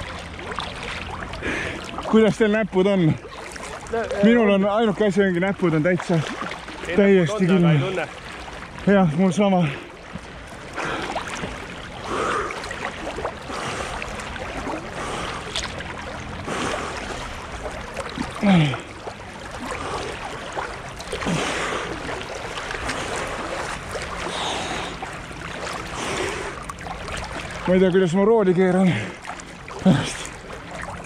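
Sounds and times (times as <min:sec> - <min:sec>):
water sloshing and splashing: 0:00.0 - 0:31.0
person gasping: 0:18.4 - 0:18.9, 0:29.8 - 0:30.3.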